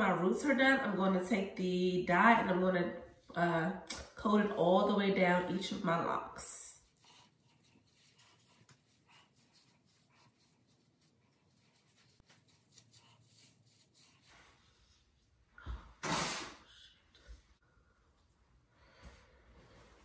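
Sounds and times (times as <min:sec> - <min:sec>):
brush rubbing on hair: 0:06.6 - 0:15.4.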